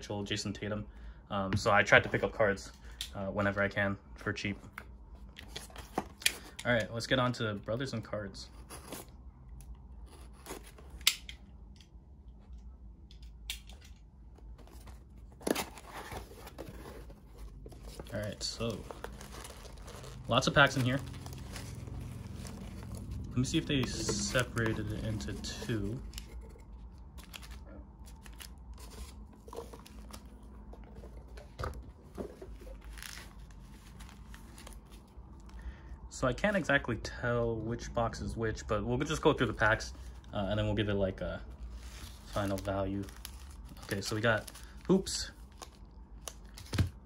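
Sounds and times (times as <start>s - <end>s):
packaging rustling: 14.4s - 35.4s, 41.6s - 47.0s.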